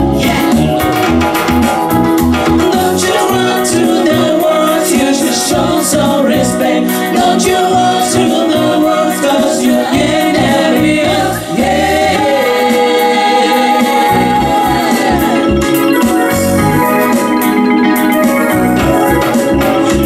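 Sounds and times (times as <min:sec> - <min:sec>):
women singing: 0:00.0 - 0:01.0, 0:02.6 - 0:16.8
bass: 0:00.0 - 0:20.0
organ-like keyboard: 0:00.0 - 0:20.0.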